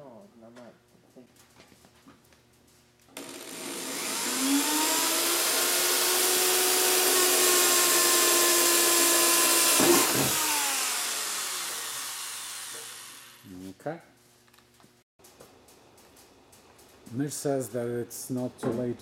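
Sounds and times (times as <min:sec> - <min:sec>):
electric drill boring sheet metal: 0:03.2 - 0:13.5.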